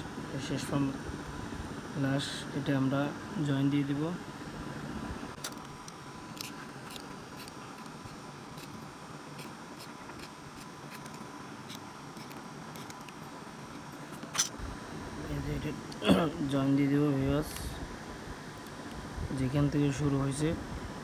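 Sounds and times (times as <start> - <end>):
blade scraping wire: 5.4 - 14.6.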